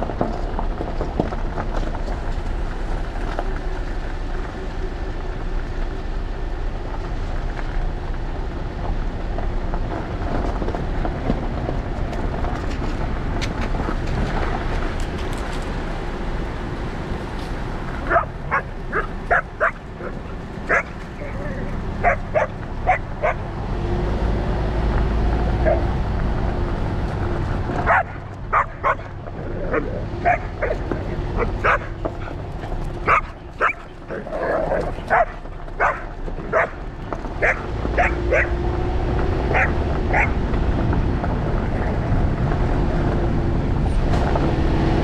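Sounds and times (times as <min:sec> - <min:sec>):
steady low rumble: 0:00.0 - 0:44.6
dog yipping: 0:18.1 - 0:20.1, 0:20.7 - 0:21.4, 0:22.0 - 0:23.4, 0:25.6 - 0:25.8, 0:27.9 - 0:29.1, 0:30.2 - 0:30.8, 0:33.0 - 0:33.9, 0:35.1 - 0:36.8, 0:37.4 - 0:38.6, 0:39.5 - 0:40.4.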